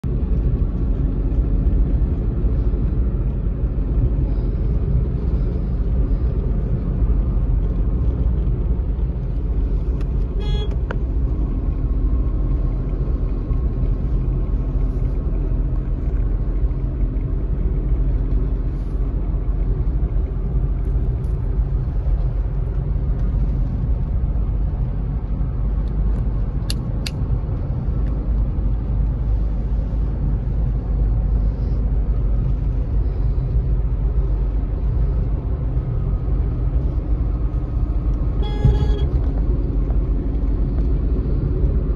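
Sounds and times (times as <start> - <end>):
car engine and road noise: 0.0 - 41.9.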